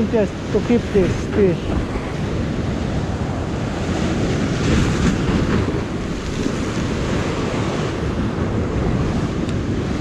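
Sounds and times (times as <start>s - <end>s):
wind buffeting microphone: 0.0s - 10.0s
surf breaking over rocks: 2.9s - 10.0s.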